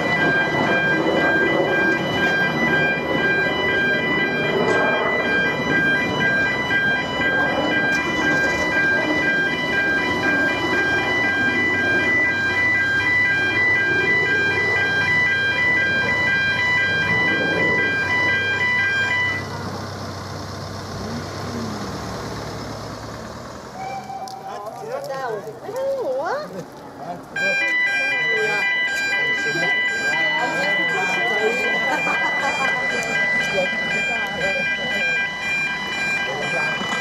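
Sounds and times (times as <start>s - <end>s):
level crossing alarm pulsing tone: 0.0s - 19.6s, 27.4s - 37.0s.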